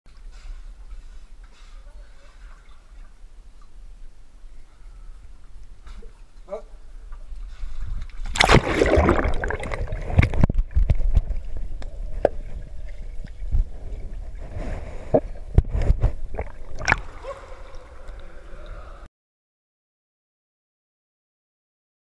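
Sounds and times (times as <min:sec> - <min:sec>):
low underwater rumble: 0:07.7 - 0:18.6.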